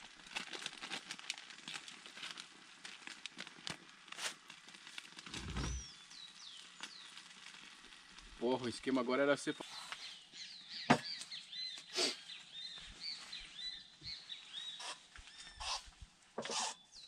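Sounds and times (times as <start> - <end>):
food frying in a pan: 0.0 - 12.9
bird chirps: 9.5 - 15.9.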